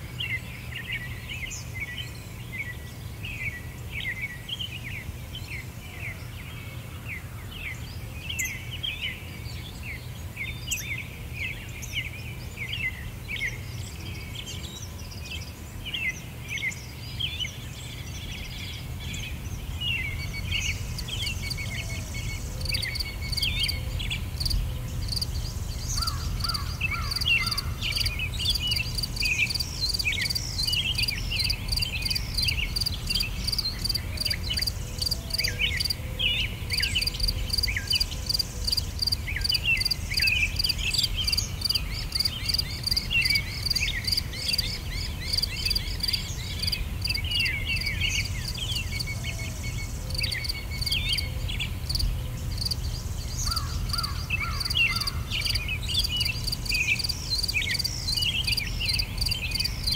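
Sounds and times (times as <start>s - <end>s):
birds chirping: 7.5s - 59.9s
insects chirping: 19.6s - 36.0s, 36.7s - 59.9s.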